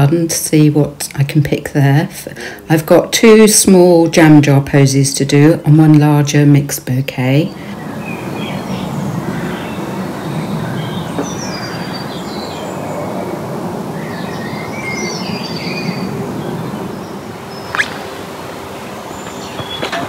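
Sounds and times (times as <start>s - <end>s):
low background noise: 0.0s - 20.0s
songbirds chirping: 5.2s - 20.0s
sharp click: 17.7s - 18.1s.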